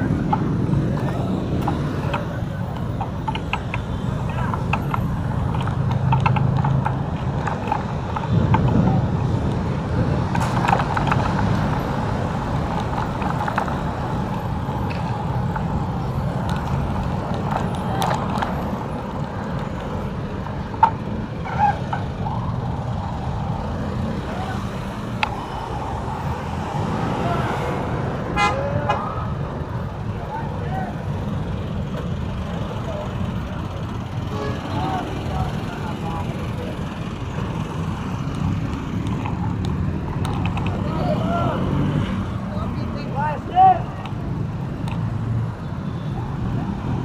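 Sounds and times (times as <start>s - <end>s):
road traffic rumble: 0.0s - 47.0s
car horn toots: 28.3s - 29.0s, 34.2s - 34.9s.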